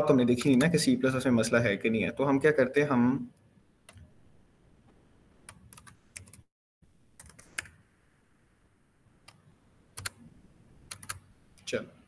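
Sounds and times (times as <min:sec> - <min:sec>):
faint keyboard typing: 0:00.3 - 0:00.9, 0:05.4 - 0:06.5, 0:07.2 - 0:07.8, 0:09.2 - 0:10.2, 0:10.8 - 0:11.7.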